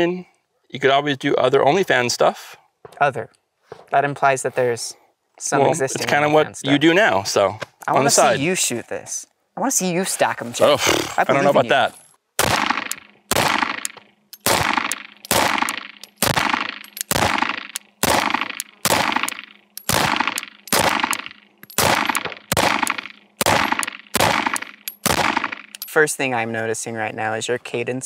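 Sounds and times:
pistol shots with short echo: 0:12.4 - 0:25.8.

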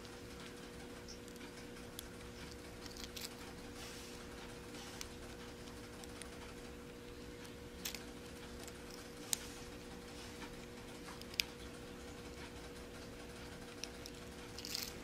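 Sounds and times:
faint steady hum: 0:00.0 - 0:15.0
beads clicking on wire: 0:10.6 - 0:15.0.

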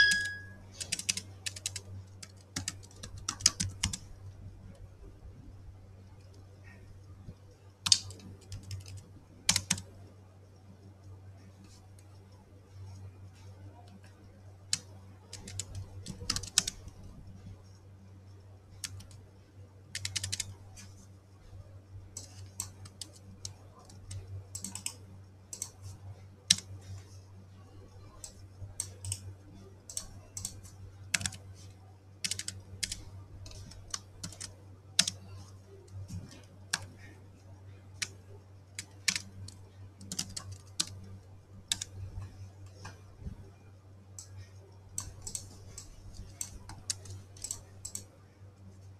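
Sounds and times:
keyboard typing: 0:00.0 - 0:04.2, 0:07.8 - 0:09.9, 0:14.7 - 0:17.8, 0:18.7 - 0:19.2, 0:19.9 - 0:21.0, 0:22.2 - 0:27.0, 0:28.0 - 0:37.2, 0:38.0 - 0:43.0, 0:44.2 - 0:48.1
steady low hum: 0:00.0 - 0:48.9.

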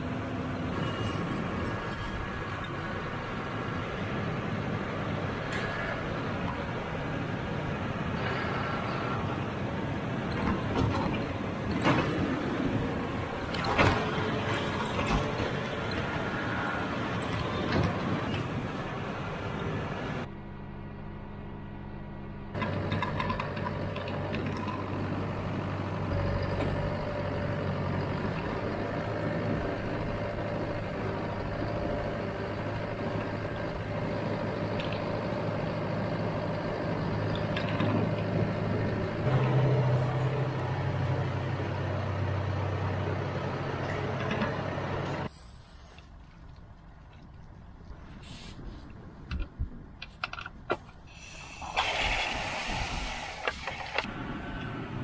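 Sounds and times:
tractor diesel engine running: 0:00.0 - 0:48.9.

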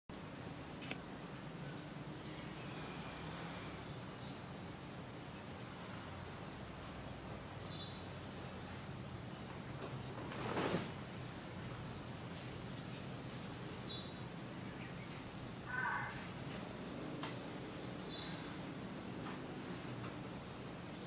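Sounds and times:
short rustle: 0:09.8 - 0:11.4.

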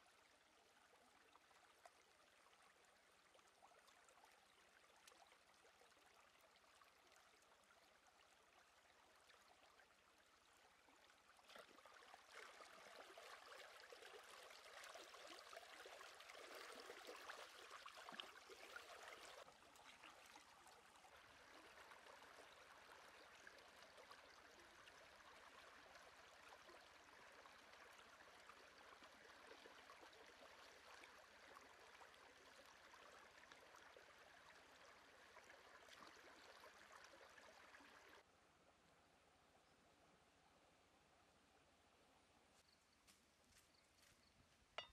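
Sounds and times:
stream running over rocks: 0:10.4 - 0:38.3
splashing and sloshing water: 0:10.9 - 0:38.3.

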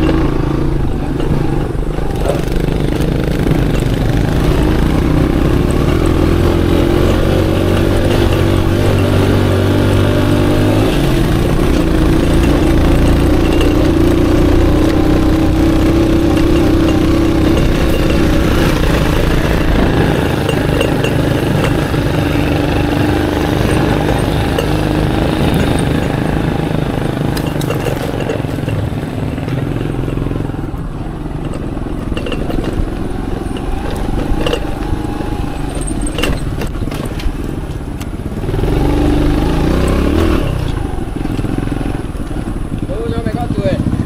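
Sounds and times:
motorcycle engine running: 0:00.0 - 0:44.0
sharp knocks: 0:02.1 - 0:30.2.

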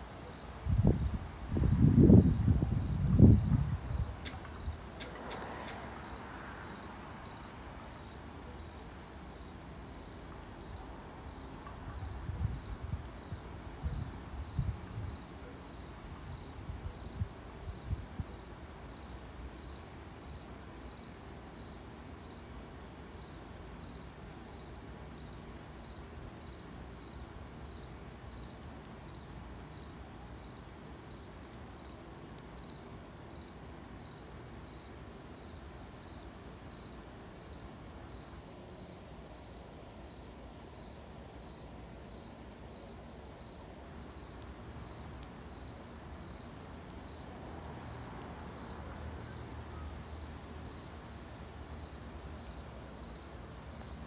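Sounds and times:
campfire hissing and crackling: 0:00.0 - 0:54.0
crickets chirping: 0:00.0 - 0:54.0
faint insect trill: 0:00.0 - 0:54.0.

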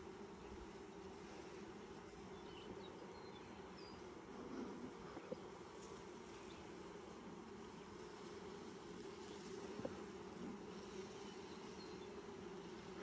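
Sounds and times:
bees buzzing: 0:00.0 - 0:13.0.

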